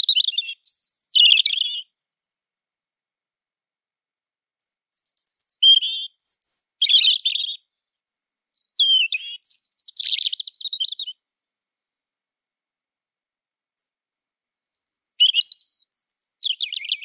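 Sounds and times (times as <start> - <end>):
robin singing: 0.0 - 2.0, 4.6 - 11.3, 13.8 - 17.0.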